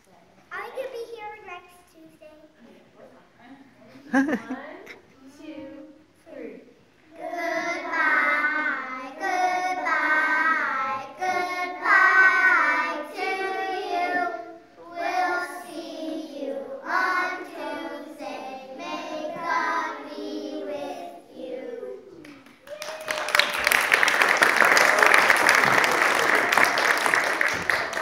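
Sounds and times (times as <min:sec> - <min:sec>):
children singing together: 0:07.1 - 0:22.2.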